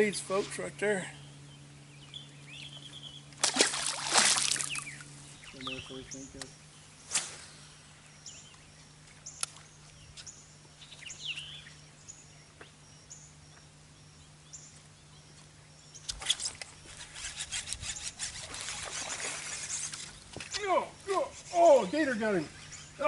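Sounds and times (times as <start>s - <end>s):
birds chirping: 0.0s - 23.0s
low steady hum: 0.0s - 23.0s
water splashing: 3.4s - 5.0s, 18.3s - 20.1s.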